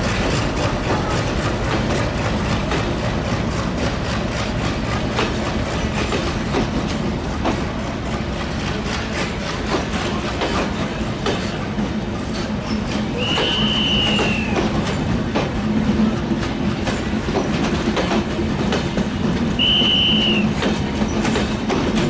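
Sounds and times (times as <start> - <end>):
wheels clattering over rail joints: 0.0 - 22.0
high wheel squeal: 12.3 - 14.6.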